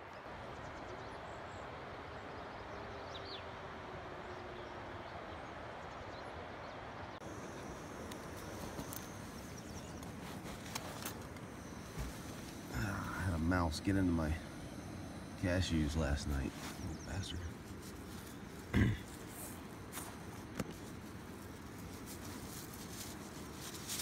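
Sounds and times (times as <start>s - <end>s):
steady rushing background: 7.2s - 24.0s.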